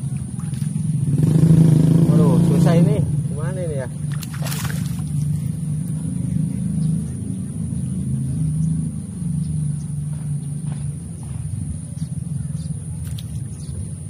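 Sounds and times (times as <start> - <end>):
fish splashing at surface: 0.0 - 1.0, 4.0 - 5.4
low motor rumble: 0.0 - 14.0.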